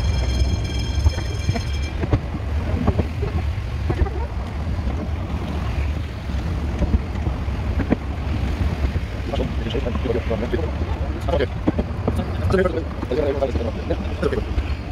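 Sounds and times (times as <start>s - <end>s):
high steady tone: 0.0s - 3.2s
train rumbling with clicks: 0.0s - 14.9s
wind on microphone: 0.0s - 14.9s.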